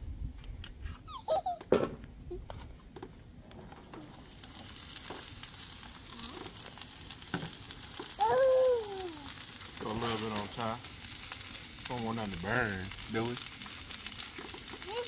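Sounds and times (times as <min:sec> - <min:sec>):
vegetables sizzling on griddle: 0:03.9 - 0:15.0.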